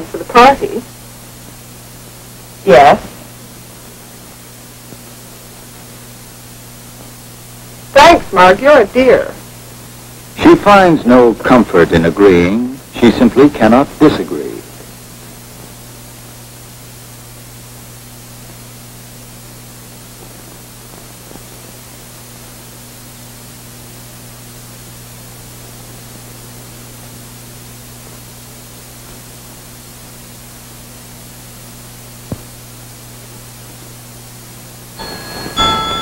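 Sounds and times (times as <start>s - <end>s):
film soundtrack hiss and hum: 0.0s - 36.0s
mantel clock chiming: 35.0s - 36.0s.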